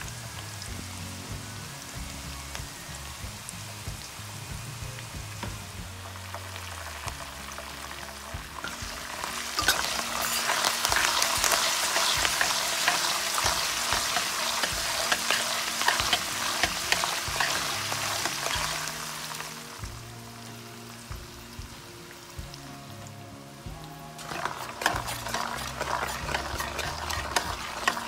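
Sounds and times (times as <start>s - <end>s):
leaves sizzling in hot oil: 0.0s - 28.0s
metal spoon stirring in pan: 8.6s - 19.0s, 24.2s - 28.0s.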